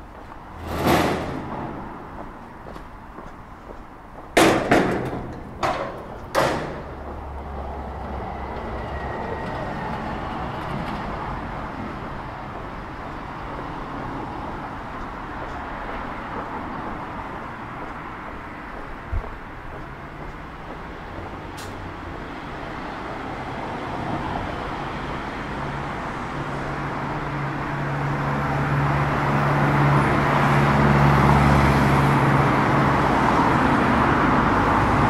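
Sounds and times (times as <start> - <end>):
city street background noise: 0.0 - 35.0
loud bangs like slams: 0.6 - 2.0, 4.4 - 7.0.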